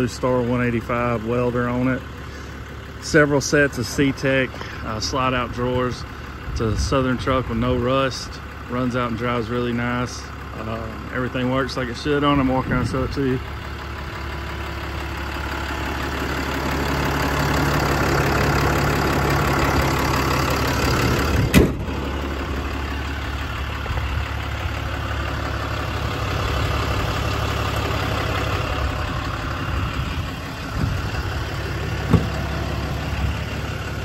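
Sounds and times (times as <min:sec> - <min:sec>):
diesel engine idling: 0:00.0 - 0:34.0.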